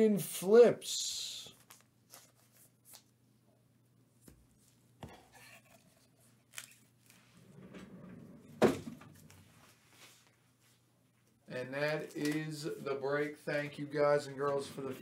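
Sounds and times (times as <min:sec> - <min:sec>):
soft rustle: 0:09.1 - 0:11.4.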